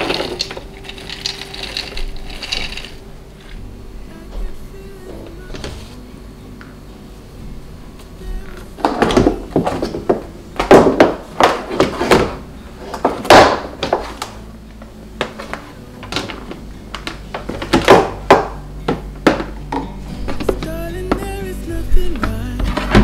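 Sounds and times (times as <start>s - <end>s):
plastic trays clattering: 0.0s - 3.0s, 8.8s - 14.4s, 15.2s - 21.4s.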